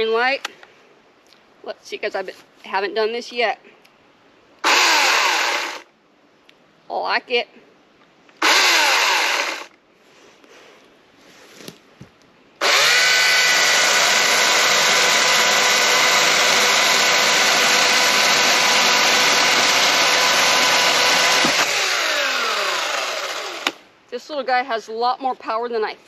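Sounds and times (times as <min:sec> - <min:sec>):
motor winding down whine: 0:04.6 - 0:05.8, 0:08.4 - 0:09.7, 0:12.6 - 0:23.8
electric chainsaw cutting log: 0:04.6 - 0:05.9, 0:08.4 - 0:09.7, 0:12.6 - 0:23.8.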